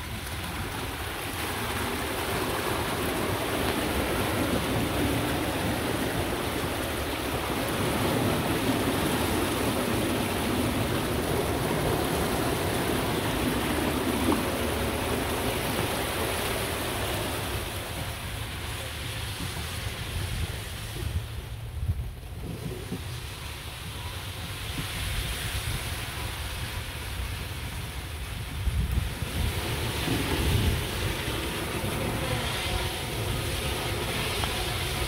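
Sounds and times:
wheels splashing through water: 0.0 - 35.0.

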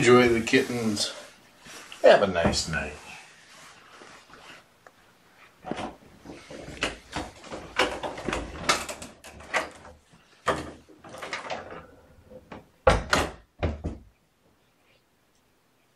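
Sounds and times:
knocks and bumps: 5.6 - 14.2
door banging shut: 12.5 - 14.1.

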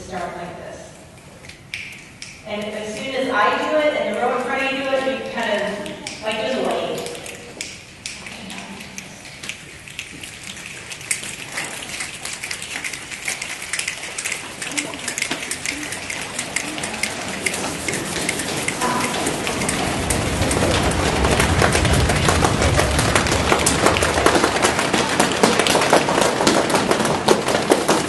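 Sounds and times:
hand snaps and pats: 1.4 - 2.4
palms rubbing: 4.1 - 28.0.

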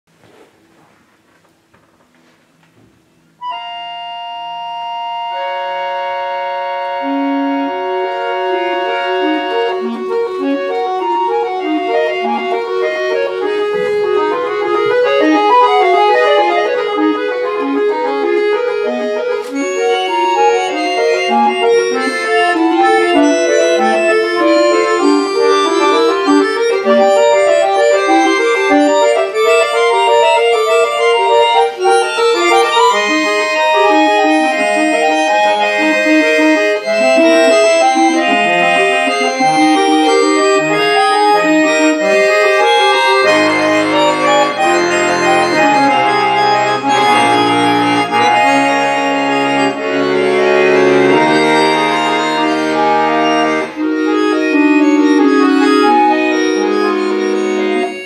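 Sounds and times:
button accordion playing: 3.4 - 58.0.

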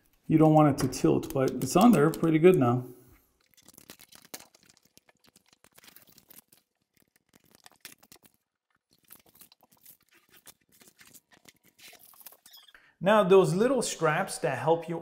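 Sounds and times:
plastic film crinkling: 0.0 - 12.7.

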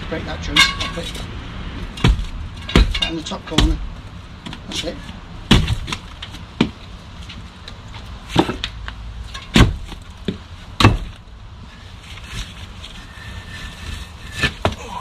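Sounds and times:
heavy thuds on stone: 1.9 - 4.6, 5.4 - 6.8, 8.3 - 8.8, 9.4 - 11.2.

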